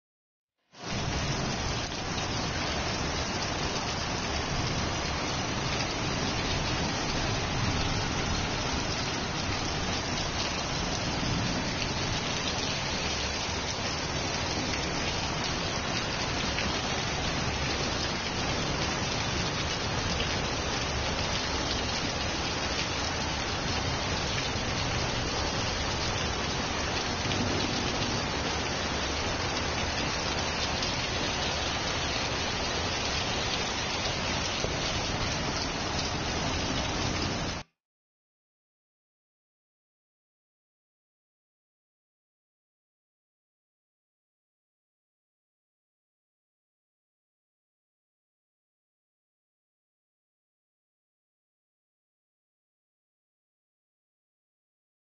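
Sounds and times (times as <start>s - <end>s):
heavy rain on metal roofs: 0.7s - 37.8s.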